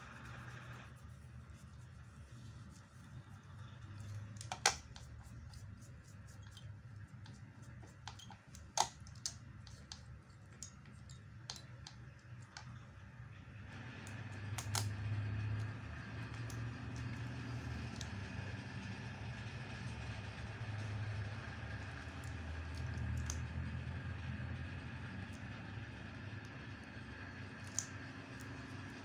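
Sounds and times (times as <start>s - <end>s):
low steady hum: 0.0s - 29.0s
small parts clicking and tapping: 2.3s - 13.1s, 13.7s - 18.7s, 21.7s - 23.9s, 25.2s - 29.0s.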